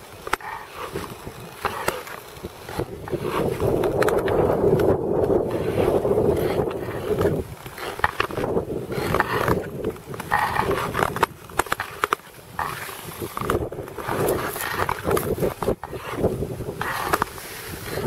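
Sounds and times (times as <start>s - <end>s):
skate blades gliding on ice: 0.0s - 18.0s
skate blades scraping ice: 0.0s - 18.0s.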